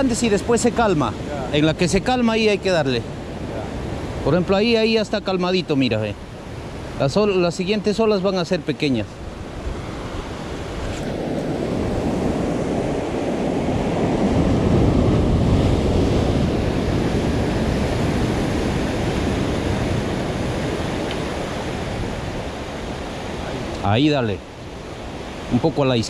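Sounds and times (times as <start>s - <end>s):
wind on microphone: 9.1s - 23.8s
surf breaking over rocks: 9.6s - 23.9s.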